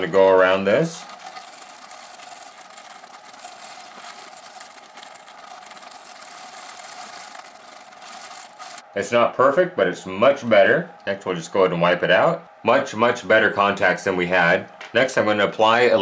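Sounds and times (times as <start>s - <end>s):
toothbrush scratching metal contacts: 0.0s - 8.8s.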